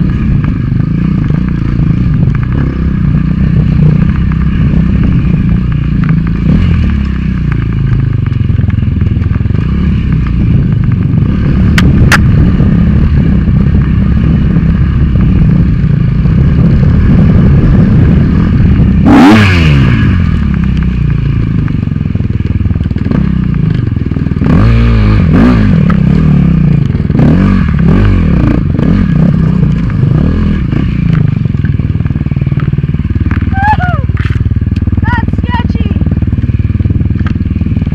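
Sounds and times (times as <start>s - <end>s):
dirt bike engine revving: 0.0s - 37.9s
bike clattering over rough ground: 28.4s - 35.0s.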